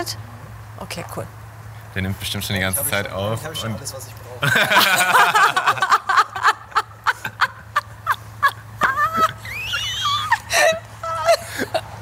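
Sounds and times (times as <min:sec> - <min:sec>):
woman and man laughing: 0:04.4 - 0:12.0.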